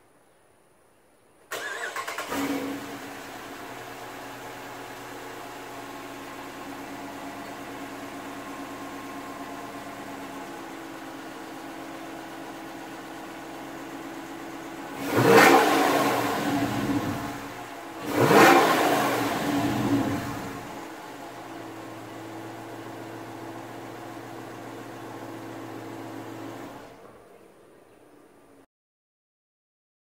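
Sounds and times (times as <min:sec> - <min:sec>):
car engine idling and revving: 0:01.5 - 0:28.6.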